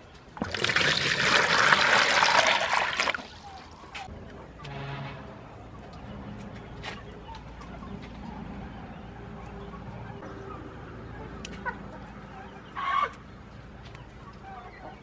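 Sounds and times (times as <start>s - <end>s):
chickens clucking: 5.8s - 15.0s.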